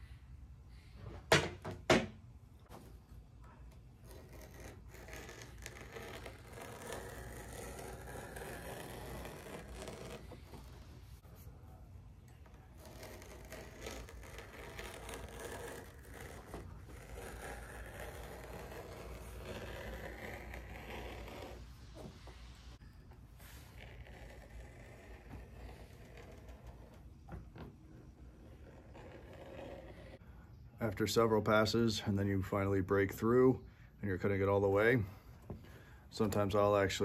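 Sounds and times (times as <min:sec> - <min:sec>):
knife scoring leather: 0:04.0 - 0:11.0, 0:12.5 - 0:21.6.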